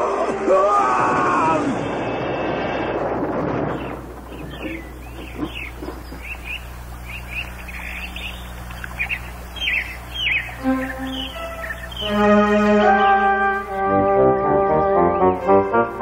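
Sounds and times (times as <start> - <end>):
falling tree crash rumble: 1.6 - 7.3
birds chirping: 2.0 - 13.8.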